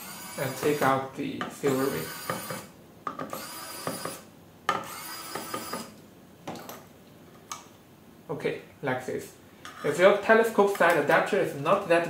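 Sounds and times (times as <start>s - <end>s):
electric screwdriver whirring: 0.0s - 0.8s, 3.3s - 4.2s, 4.8s - 5.9s.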